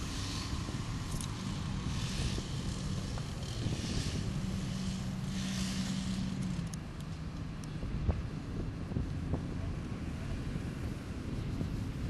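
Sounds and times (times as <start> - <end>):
steady hum: 0.0 - 7.2
crane engine rumbling: 0.0 - 12.0.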